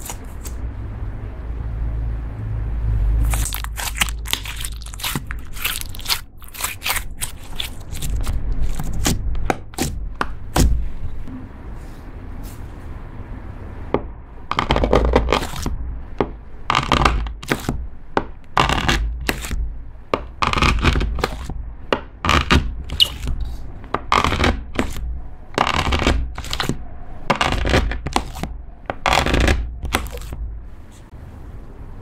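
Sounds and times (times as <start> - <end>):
knife cutting through slime: 0.0 - 0.6, 3.2 - 10.8, 14.5 - 30.4.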